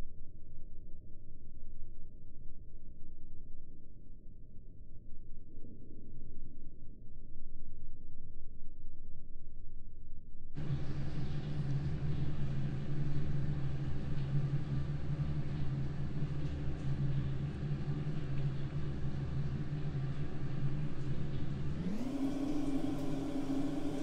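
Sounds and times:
machine hum rising in pitch: 10.6s - 24.0s.

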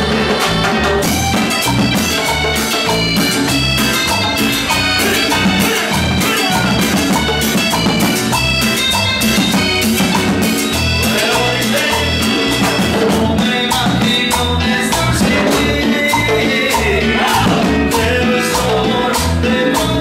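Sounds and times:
scraped metal guira: 0.0s - 13.8s
electric bass: 0.0s - 20.0s
keyboard: 0.0s - 20.0s.

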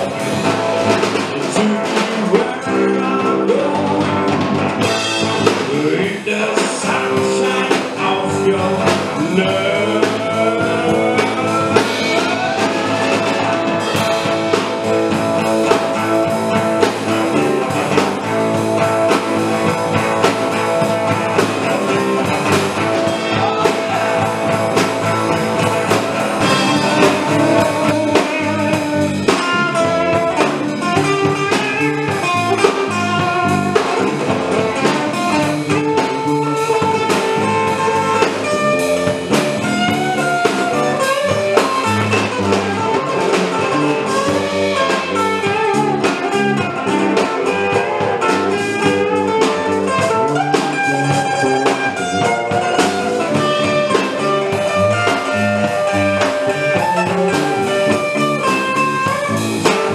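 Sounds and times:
blues band playing live: 0.0s - 59.9s.

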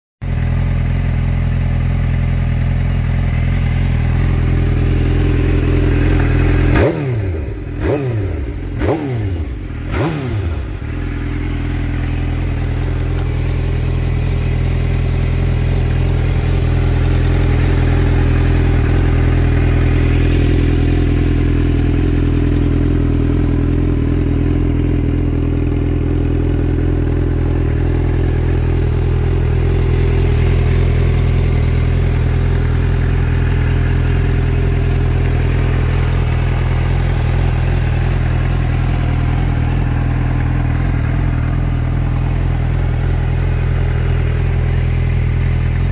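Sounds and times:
motorcycle engine idling: 0.2s - 45.9s.

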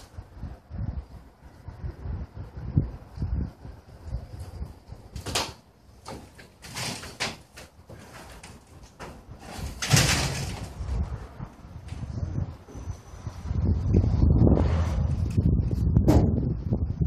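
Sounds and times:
metal sheet scraping and rattling: 5.1s - 12.8s, 14.0s - 16.7s.

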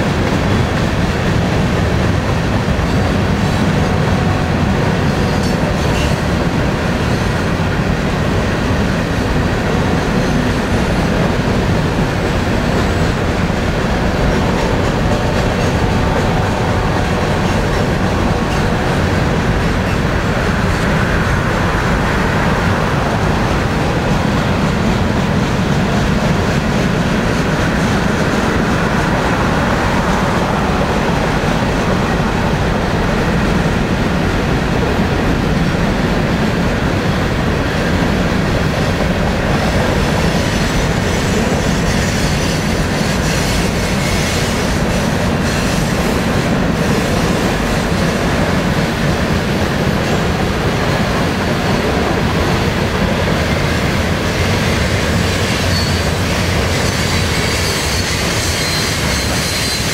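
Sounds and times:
train wheels rumbling on rail: 0.0s - 59.9s
high wheel squeal: 40.2s - 46.2s, 54.4s - 59.9s.

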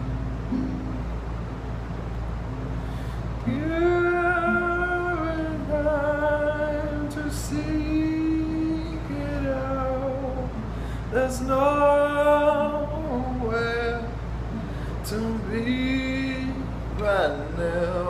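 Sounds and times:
acoustic guitar: 0.0s - 18.0s
man singing long notes: 3.5s - 14.2s.

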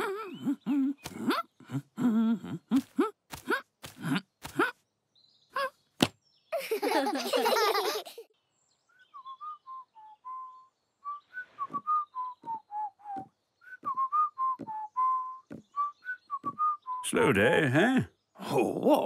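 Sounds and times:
soft taps: 16.4s - 16.6s.

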